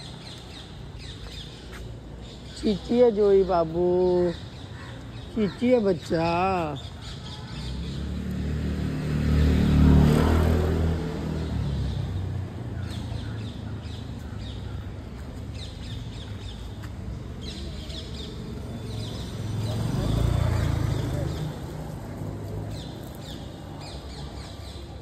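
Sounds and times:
birds chirping: 0.0 - 25.0
vehicle engine passing: 7.5 - 13.2, 17.0 - 25.0.

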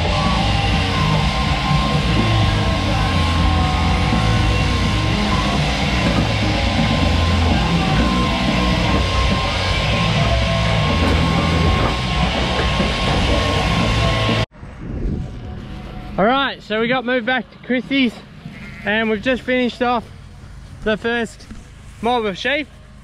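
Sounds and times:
loud rock music: 0.0 - 14.5.

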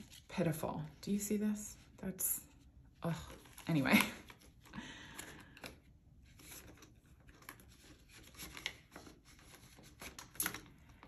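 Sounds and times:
plastic envelopes rustling: 3.1 - 11.0.

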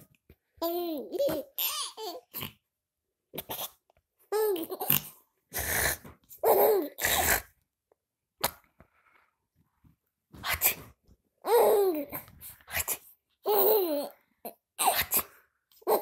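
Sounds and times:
baby laughing: 0.6 - 2.4, 4.3 - 5.1, 6.4 - 7.3, 11.4 - 12.2, 13.4 - 15.2, 15.8 - 16.0.

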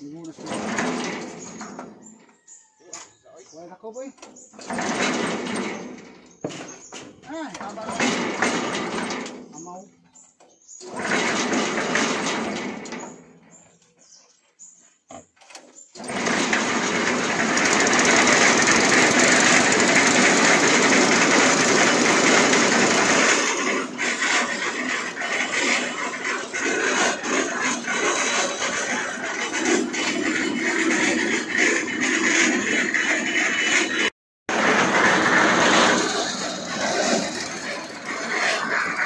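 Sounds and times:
small petrol engine running noisily: 10.8 - 12.6, 16.0 - 39.0.

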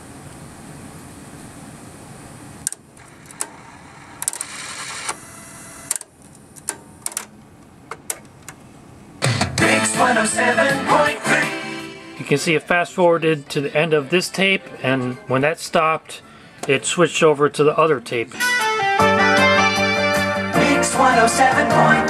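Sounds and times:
blank tape hiss and hum: 0.0 - 22.0
tape fast-forward whirring: 3.0 - 6.0
cassette mechanism clicks: 5.9 - 8.6
music from tape: 9.2 - 15.5, 18.3 - 22.0.

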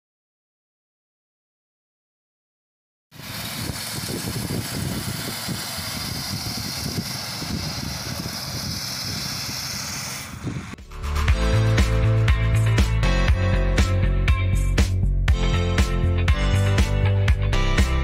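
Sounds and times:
small engine running: 3.1 - 10.8.

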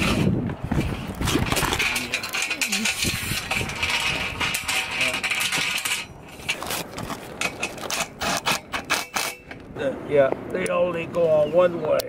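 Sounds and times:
metal hardware clinking: 1.3 - 9.7.

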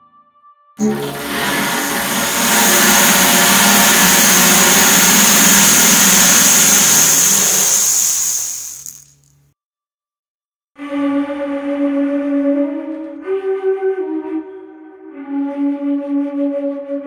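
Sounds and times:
loud rushing noise: 0.8 - 9.1
low drone: 0.8 - 9.1.

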